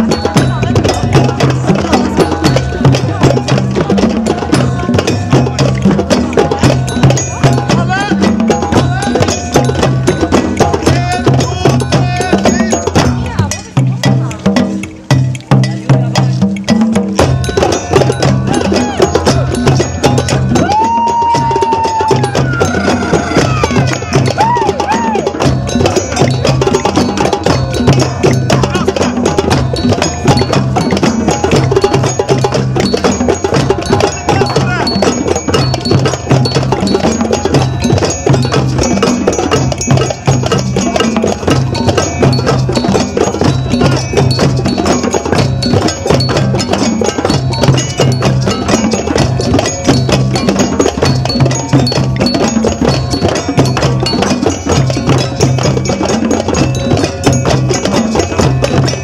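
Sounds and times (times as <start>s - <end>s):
hand drums playing: 0.0s - 59.0s
metal bell ringing: 0.0s - 59.0s.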